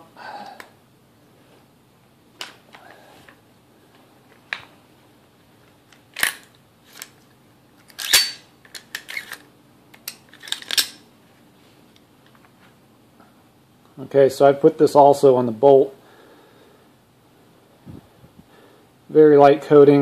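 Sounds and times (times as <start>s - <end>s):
rifle parts clicking and clacking: 5.9s - 7.2s, 7.8s - 11.0s.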